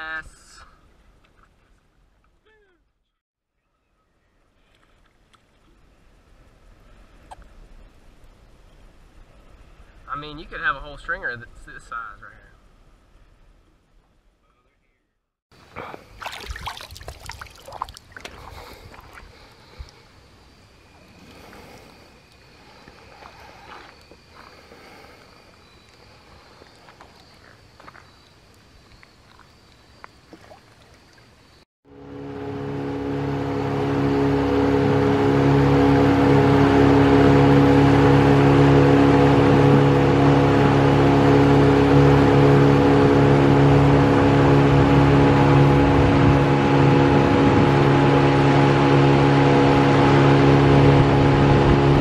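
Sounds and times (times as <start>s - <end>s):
water lapping: 15.7s - 20.1s
outboard motor running: 15.8s - 20.1s, 31.9s - 52.0s
water splashing and dripping: 16.0s - 19.4s, 30.0s - 31.4s.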